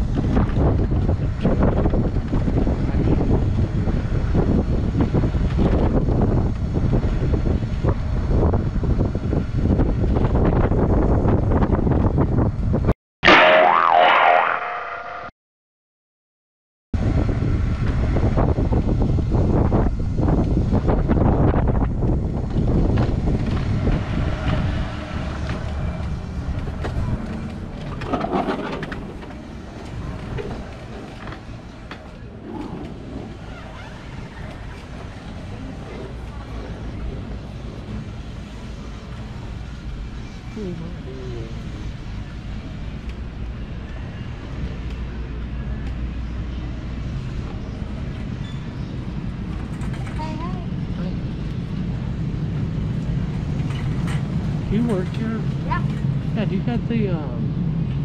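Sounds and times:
wind on microphone: 0:00.0 - 0:12.9, 0:17.0 - 0:58.0
store din: 0:13.2 - 0:15.3
wheelchair rolling on concrete: 0:26.6 - 0:35.2.

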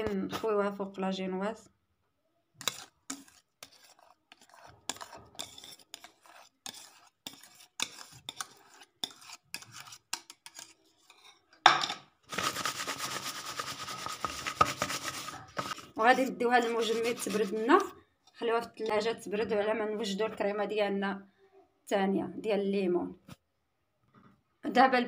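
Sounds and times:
utensil scraping metal saucepan: 0:02.6 - 0:11.6, 0:12.3 - 0:20.1.

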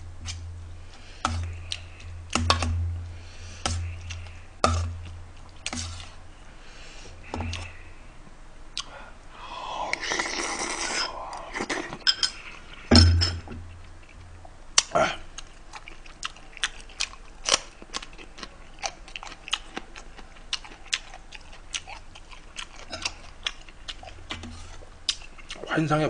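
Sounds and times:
eating sounds: 0:03.5 - 0:06.2, 0:08.7 - 0:12.9, 0:13.6 - 0:25.7.

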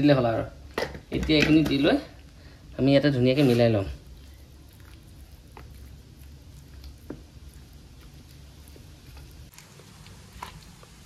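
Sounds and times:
low steady hum: 0:00.0 - 0:11.0
wet squishing of hand mixing: 0:03.2 - 0:11.0.

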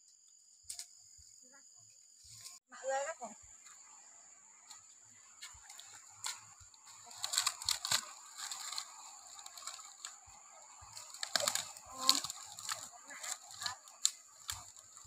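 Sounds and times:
footsteps in dry leaves: 0:05.4 - 0:15.0.

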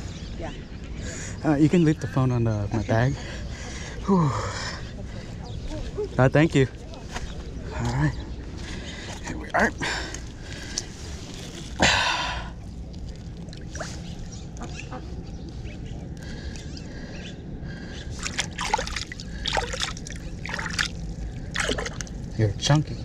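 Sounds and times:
shallow water splashing: 0:10.4 - 0:15.2, 0:18.1 - 0:22.4
water trickling: 0:11.6 - 0:14.8, 0:18.2 - 0:22.8.

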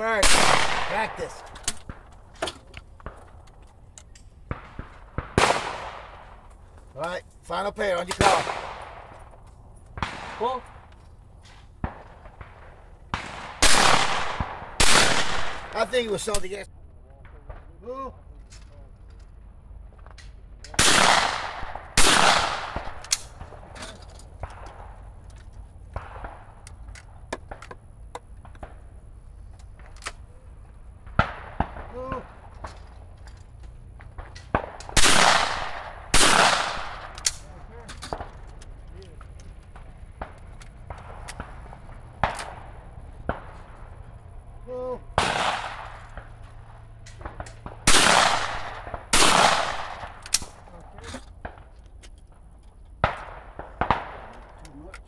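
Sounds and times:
shotgun shots booming: 0:00.0 - 0:02.2, 0:04.4 - 0:06.5, 0:07.9 - 0:09.4, 0:10.0 - 0:10.9, 0:11.6 - 0:16.6, 0:20.7 - 0:25.1, 0:31.1 - 0:32.7, 0:34.0 - 0:38.3, 0:39.7 - 0:44.4, 0:45.1 - 0:50.7, 0:53.0 - 0:54.5.

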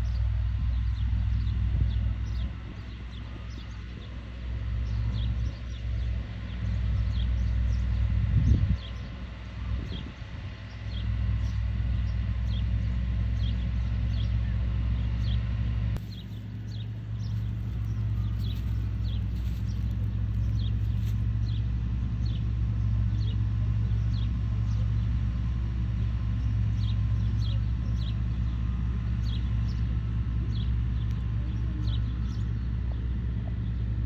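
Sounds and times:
city traffic rumble: 0:00.0 - 0:34.0.

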